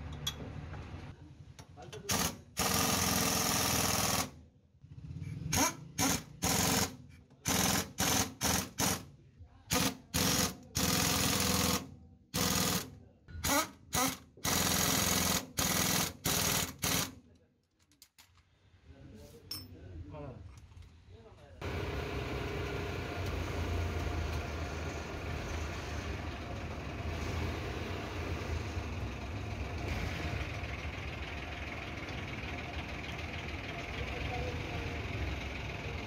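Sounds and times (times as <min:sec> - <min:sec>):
impact wrench hammering: 0:05.5 - 0:09.0.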